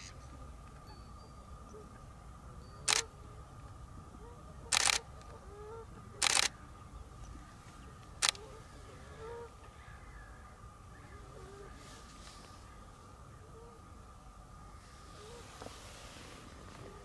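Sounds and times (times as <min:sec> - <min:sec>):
faint bird calls: 0:00.0 - 0:17.0
camera shutter clicks: 0:02.9 - 0:03.1, 0:04.7 - 0:05.1, 0:06.2 - 0:06.6, 0:08.2 - 0:08.4.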